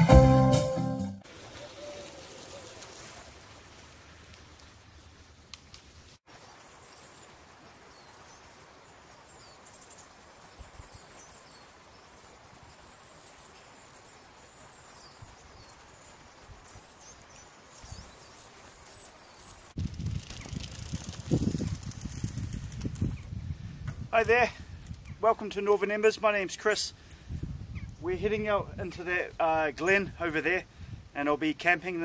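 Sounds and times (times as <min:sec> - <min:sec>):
small birds chirping: 0:06.3 - 0:23.4, 0:27.6 - 0:28.2.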